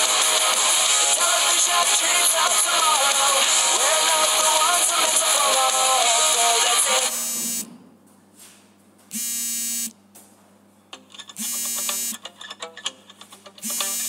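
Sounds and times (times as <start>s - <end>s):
music: 0.0s - 7.2s, 12.0s - 14.0s
interval timer buzzer: 6.9s - 7.8s, 9.1s - 10.0s, 11.4s - 12.2s, 13.6s - 14.0s.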